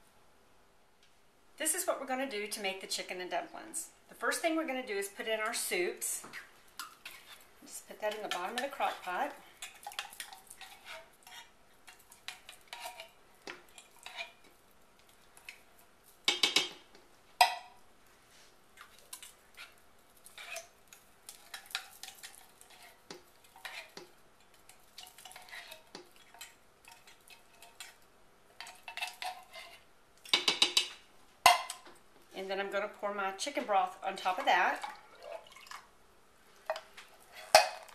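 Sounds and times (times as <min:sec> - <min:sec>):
spatula scraping soup from can: 0:06.8 - 0:07.5, 0:08.1 - 0:14.5, 0:18.8 - 0:24.1, 0:24.7 - 0:28.0, 0:28.6 - 0:30.4.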